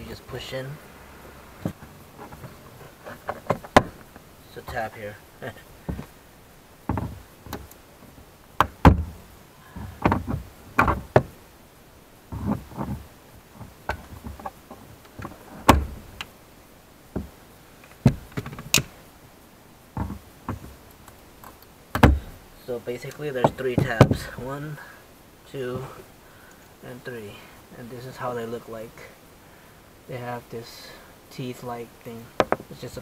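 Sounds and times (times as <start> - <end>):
rattling and handling noise: 1.6 - 6.2, 6.8 - 9.2, 9.8 - 11.4, 12.3 - 16.3.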